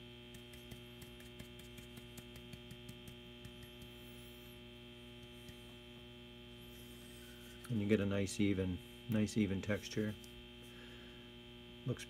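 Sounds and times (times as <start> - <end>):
brush tapping: 0.0 - 4.4, 5.2 - 5.8
electrical mains hum: 0.0 - 12.0.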